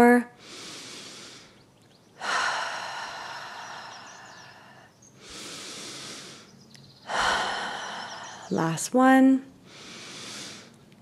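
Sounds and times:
woman breathing deeply: 0.4 - 8.5, 9.6 - 10.8.

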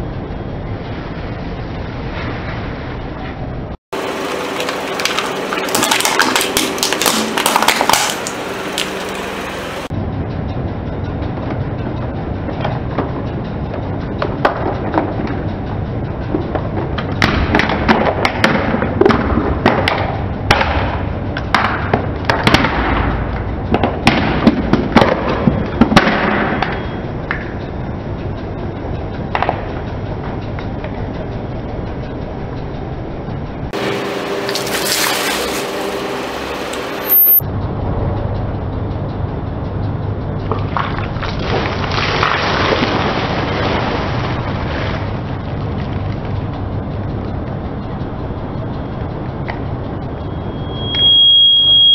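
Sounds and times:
car engine humming: 3.4 - 17.3, 27.0 - 42.0
tyre crushing plastic packs: 5.0 - 9.0
gritty crunch: 33.8 - 37.1.

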